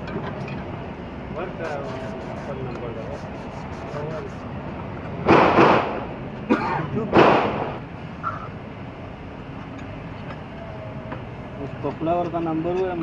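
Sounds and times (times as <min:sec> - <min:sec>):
file rasping against metal: 0:01.7 - 0:04.4.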